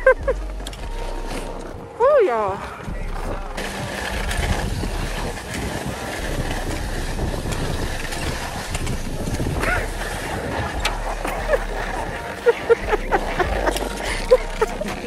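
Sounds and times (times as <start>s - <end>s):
skis sliding over snow: 0.0s - 15.0s
low rumble: 2.9s - 12.2s, 12.8s - 15.0s
wind rushing across microphone: 3.6s - 13.7s.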